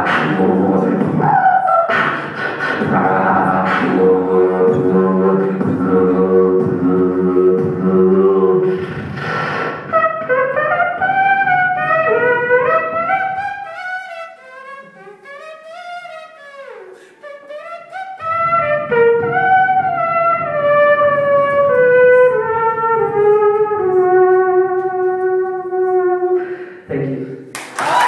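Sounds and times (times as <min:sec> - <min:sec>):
low bass: 0:00.0 - 0:13.2
beatboxer imitating trumpet: 0:00.0 - 0:26.8.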